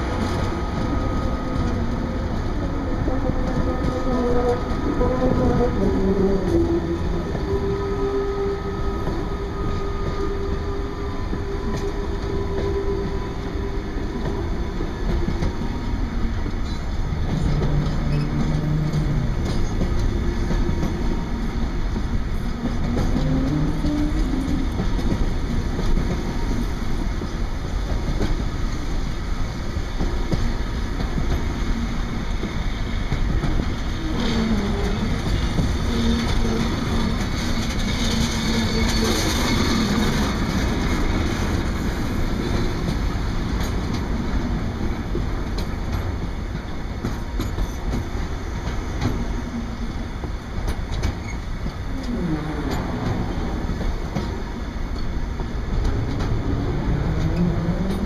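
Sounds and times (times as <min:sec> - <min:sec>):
freight train rumbling past: 0:00.0 - 0:58.0
wheels clicking over rail joints: 0:32.4 - 0:58.0.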